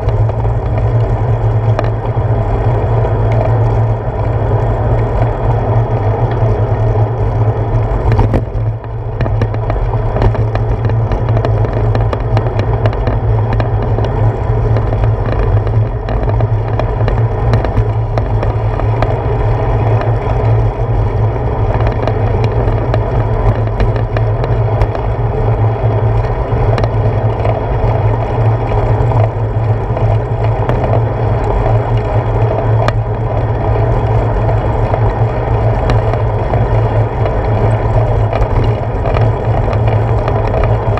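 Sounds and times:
small clicks and rattles: 0.0 - 40.9
tyre and road rumble: 0.0 - 40.9.

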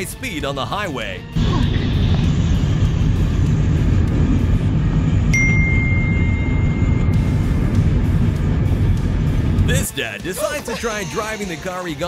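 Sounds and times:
highway driving rumble: 1.4 - 10.0
thin high steady tone: 5.4 - 7.9.

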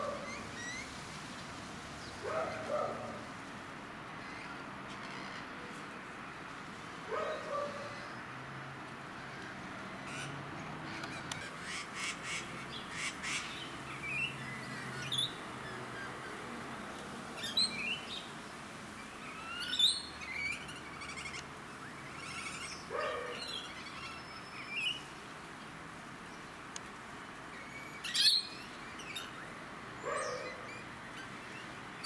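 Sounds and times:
lorikeets screeching and chattering: 19.2 - 25.1.

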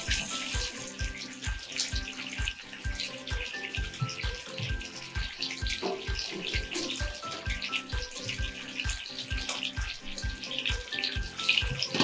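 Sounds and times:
background music with beat: 0.0 - 12.0
meat sizzling in frying pan: 0.0 - 12.0.

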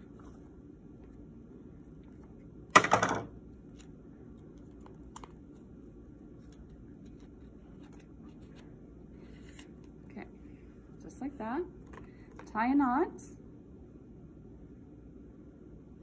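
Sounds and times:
low room hum: 0.0 - 16.0
scissors clattering on table: 2.8 - 3.3.

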